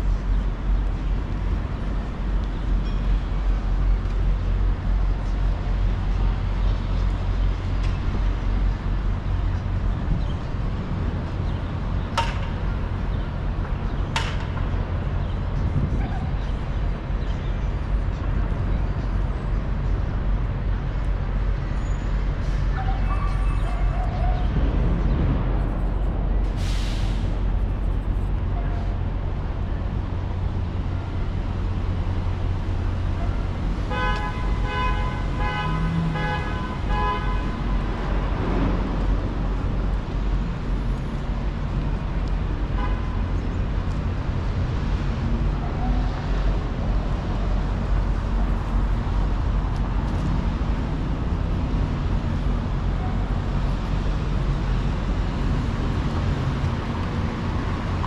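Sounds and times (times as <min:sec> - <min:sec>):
low rumble of traffic: 0:00.0 - 0:58.0
vehicle horn beeping: 0:33.9 - 0:37.7.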